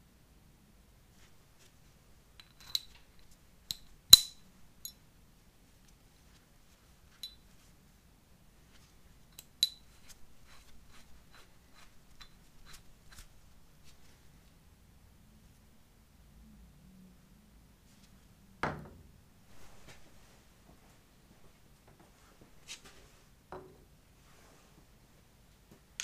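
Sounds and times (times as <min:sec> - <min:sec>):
metal clip clicking against bolt: 0:03.7 - 0:04.4.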